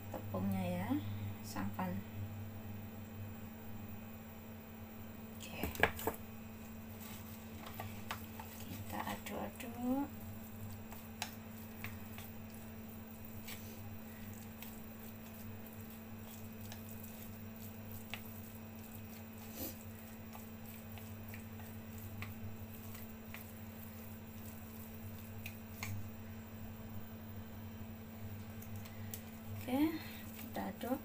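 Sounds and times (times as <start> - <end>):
steady low hum: 0.0 - 31.0
wet squishing of minced meat: 6.9 - 26.3, 28.3 - 31.0
chopsticks clicking against bowl: 10.8 - 12.6.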